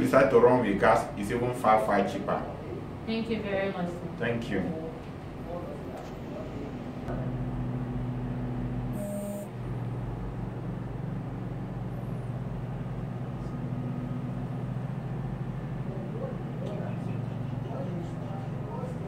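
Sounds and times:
engine running steadily: 4.9 - 19.0.

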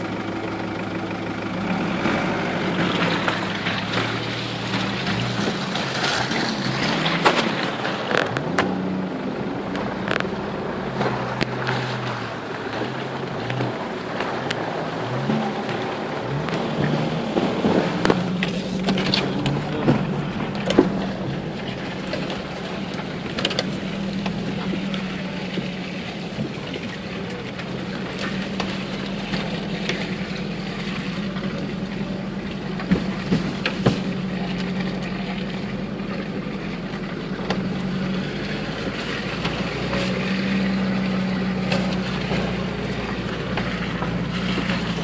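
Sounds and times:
vehicle knocking over bumps: 12.8 - 35.6.

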